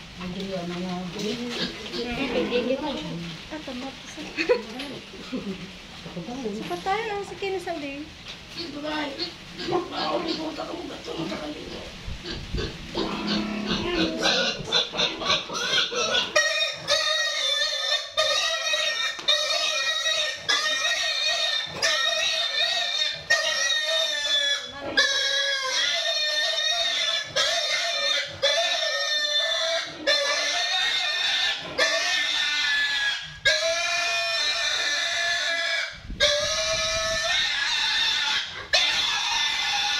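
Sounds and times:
young boar squealing: 12.2 - 39.9.

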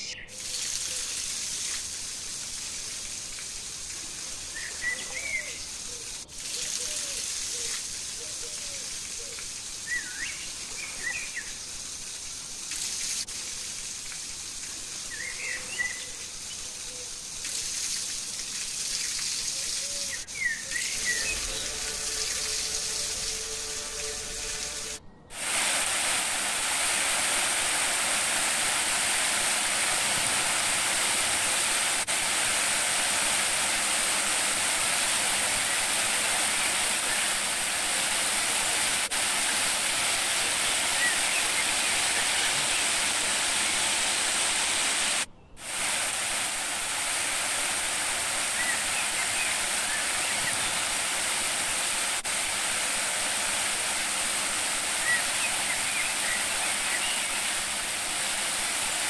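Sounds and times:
stream rushing over rocks: 0.0 - 59.0
bird chirps: 19.0 - 24.8.

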